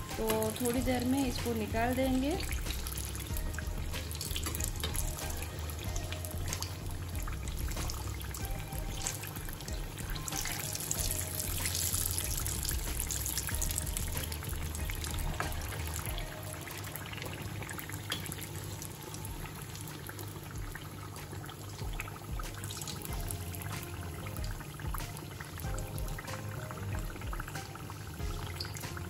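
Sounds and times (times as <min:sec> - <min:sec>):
food sizzling in hot oil: 0:00.0 - 0:29.0
steel spoon ticking in oil: 0:02.4 - 0:16.2.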